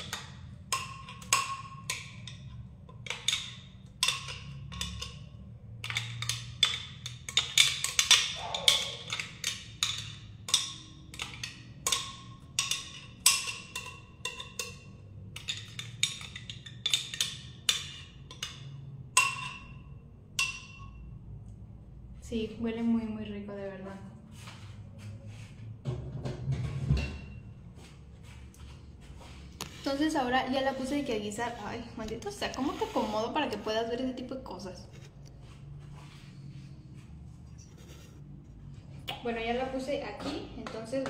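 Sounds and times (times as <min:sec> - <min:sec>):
utensil clinking against cookware: 0:00.0 - 0:21.0.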